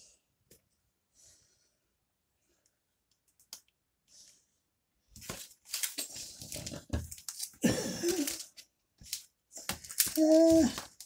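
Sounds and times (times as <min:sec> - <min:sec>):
plastic sleeves crinkling: 0:05.2 - 0:11.0.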